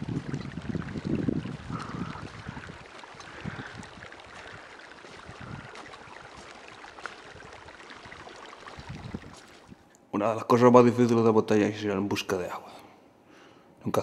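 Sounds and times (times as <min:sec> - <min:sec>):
wind buffeting microphone: 0:00.0 - 0:09.8.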